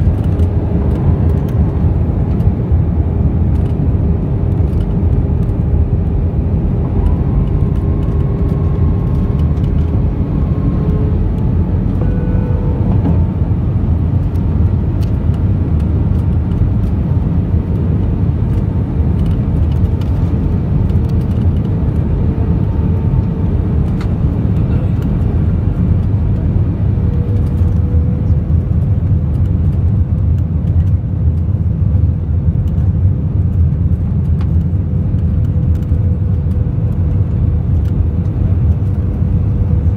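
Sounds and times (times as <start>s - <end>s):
aircraft cabin engine rumble: 0.0s - 39.9s
faint whining tones: 6.7s - 14.4s.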